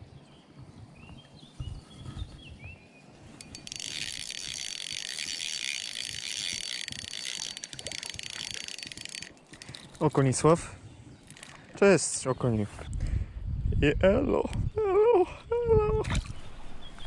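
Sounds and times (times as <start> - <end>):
reel gear noise: 3.3 - 10.6, 11.2 - 11.8
fishing reel clicks: 3.4 - 10.4, 11.2 - 11.6.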